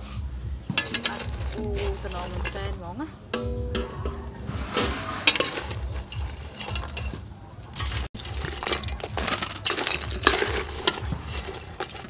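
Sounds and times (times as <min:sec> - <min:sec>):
metal ladle scraping steel pot: 0:00.0 - 0:02.7, 0:03.3 - 0:12.0
crab shells clicking together: 0:07.8 - 0:12.0.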